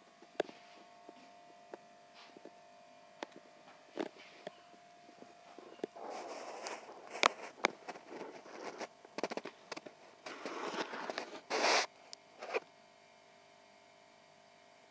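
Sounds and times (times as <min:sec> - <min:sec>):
camera handling rustling: 0:05.8 - 0:11.8.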